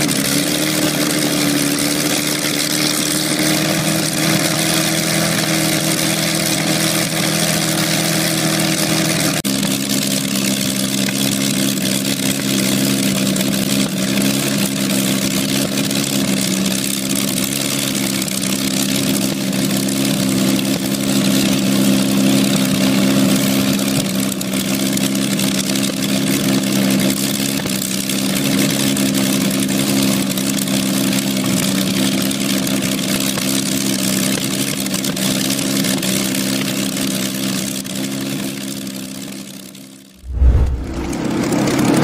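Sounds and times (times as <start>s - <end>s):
aero engine running steadily: 0.0s - 42.0s.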